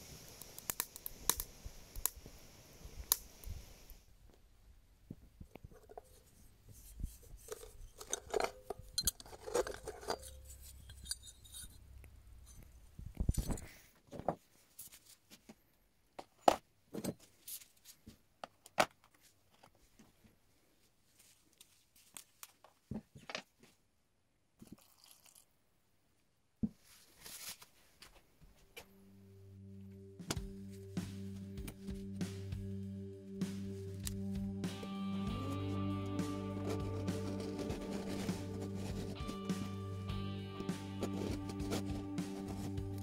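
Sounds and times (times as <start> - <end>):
scraping through ash: 35.5 - 43.0.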